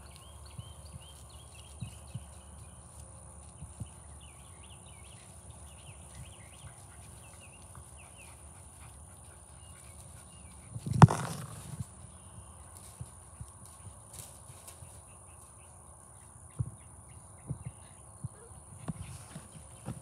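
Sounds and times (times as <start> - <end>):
soft thumps: 10.9 - 11.8.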